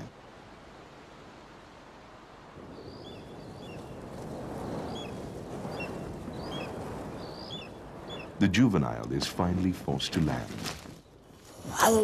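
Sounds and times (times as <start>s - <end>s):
bird chirps: 4.6s - 8.4s.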